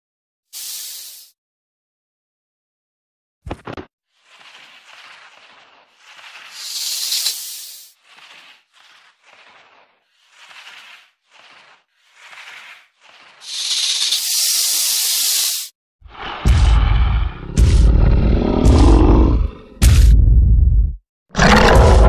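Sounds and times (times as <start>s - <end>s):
loud long hiss: 0.6s - 1.3s, 6.5s - 8.4s, 13.4s - 15.7s
short soft hisses: 0.6s - 1.4s, 6.5s - 8.6s, 13.4s - 15.7s.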